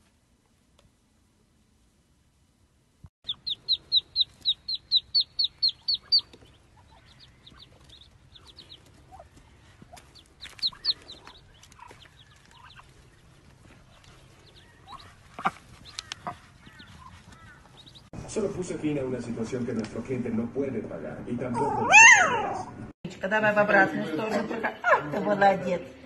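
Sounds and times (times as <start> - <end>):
ducklings peeping: 3.2 - 18.1.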